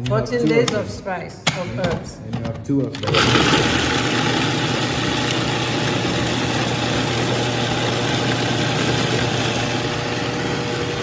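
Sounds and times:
food processor running: 0:03.0 - 0:11.0.

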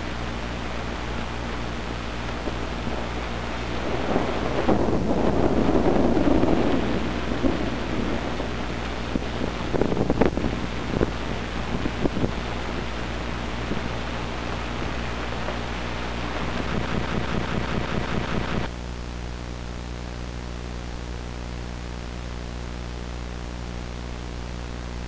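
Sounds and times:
low rumble: 0:00.0 - 0:18.7
scattered crackles: 0:00.0 - 0:18.7
steady hiss: 0:00.0 - 0:18.7
low hum: 0:00.0 - 0:23.2.

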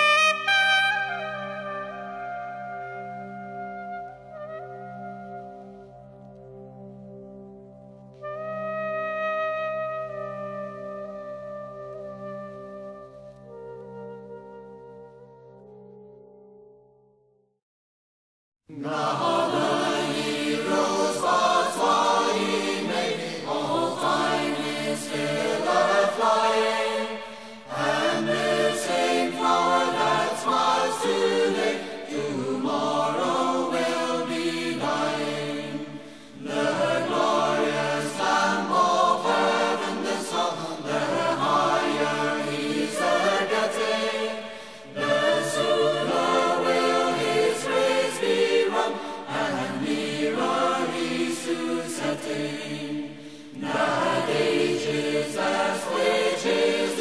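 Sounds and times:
choir-like singing with music: 0:18.7 - 0:57.0.

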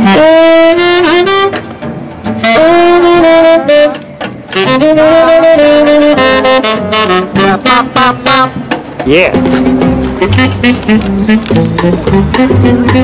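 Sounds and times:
drums: 0:00.0 - 0:13.0
jazz saxophone: 0:00.0 - 0:13.0
upright bass: 0:04.7 - 0:13.0.

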